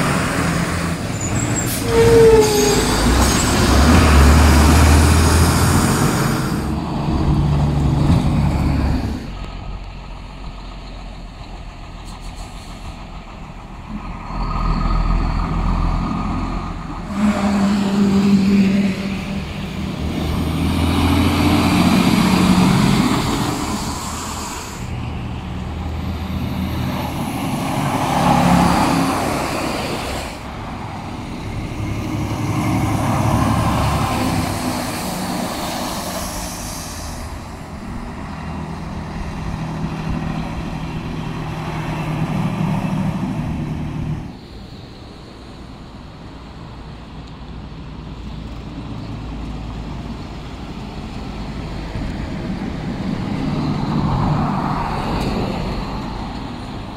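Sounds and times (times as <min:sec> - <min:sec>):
tires hissing on wet road: 0:00.0 - 0:09.4, 0:17.0 - 0:46.8
diesel truck engines rumbling: 0:00.0 - 0:56.9.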